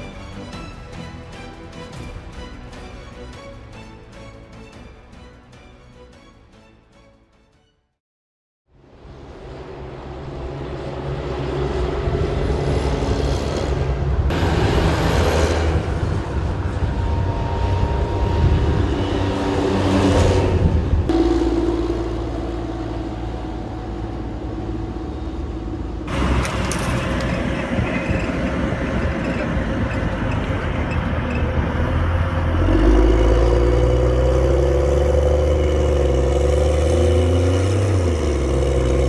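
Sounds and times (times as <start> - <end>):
diesel engine rumble: 8.9 - 39.0.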